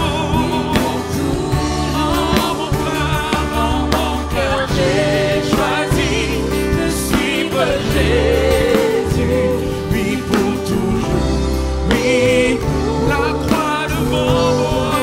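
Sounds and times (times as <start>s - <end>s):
held low notes and chords: 0.0s - 15.0s
person singing with vibrato: 0.0s - 15.0s.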